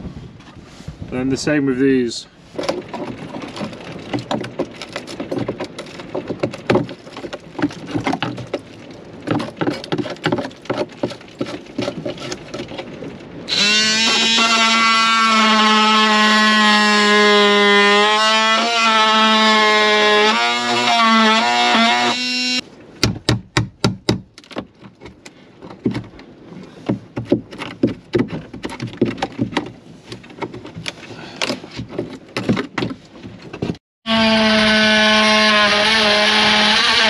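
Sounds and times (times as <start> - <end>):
knocks and clicks on timber: 2.6 - 13.0, 23.0 - 33.8.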